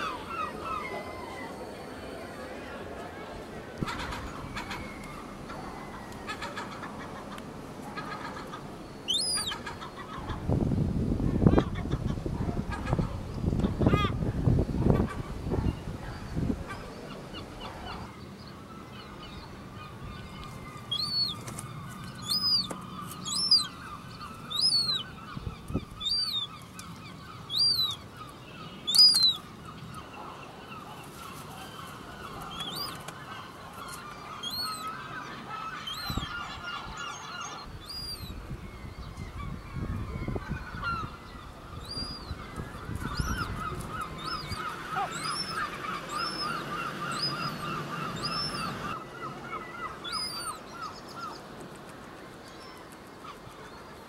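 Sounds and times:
gull calls chatter: 0.0s - 10.5s, 14.9s - 38.4s, 39.2s - 51.4s
gull chick peeping: 8.0s - 10.4s, 20.3s - 26.6s, 39.4s - 49.0s.

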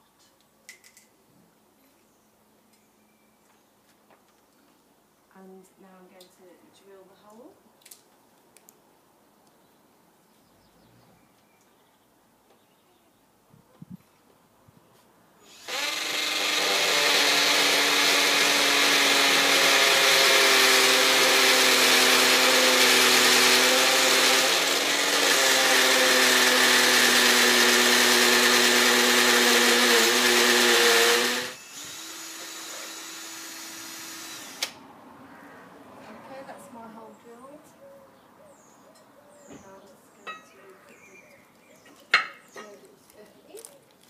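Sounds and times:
power drill boring a hole: 15.5s - 34.8s.

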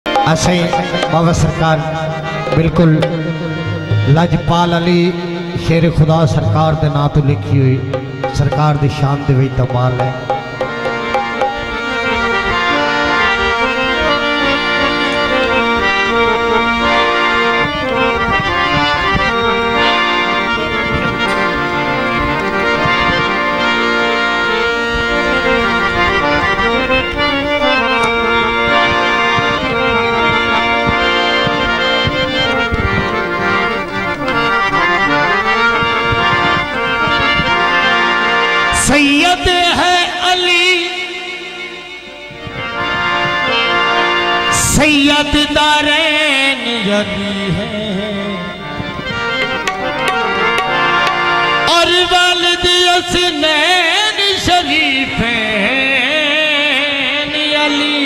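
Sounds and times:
harmonium melody: 0.0s - 58.0s
hand drum beating: 0.1s - 4.4s, 7.8s - 12.3s, 27.8s - 37.6s, 49.4s - 51.4s.

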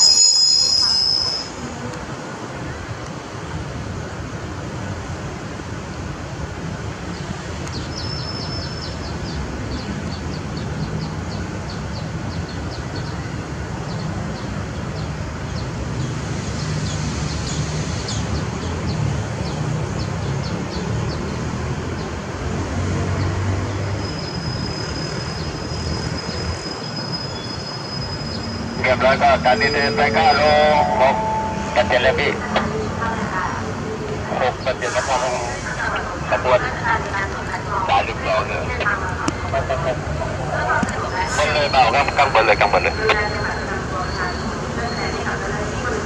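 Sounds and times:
thin high whine: 0.0s - 1.7s, 27.8s - 32.7s
locomotive engine rumble: 24.4s - 46.0s.

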